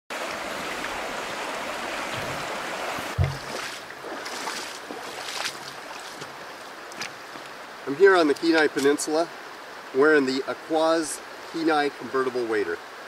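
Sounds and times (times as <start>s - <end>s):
river water rushing over rocks: 0.1s - 13.0s
boots splashing in water: 2.0s - 7.5s
low thump: 2.1s - 2.5s, 3.1s - 3.7s.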